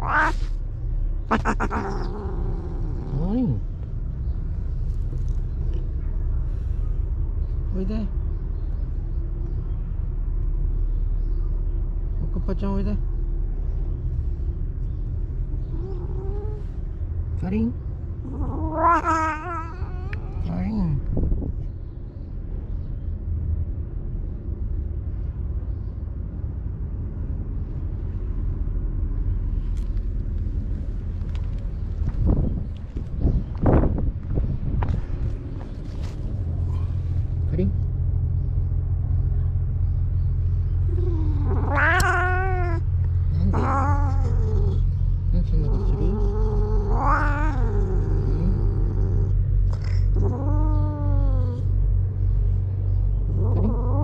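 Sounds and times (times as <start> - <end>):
cat yowling: 0.0 - 0.6, 1.3 - 3.3, 15.7 - 16.7, 18.2 - 20.6, 40.8 - 45.0, 45.6 - 51.8, 53.3 - 54.0
low rumble: 0.0 - 54.0
wind buffeting microphone: 19.9 - 22.8, 30.0 - 40.0.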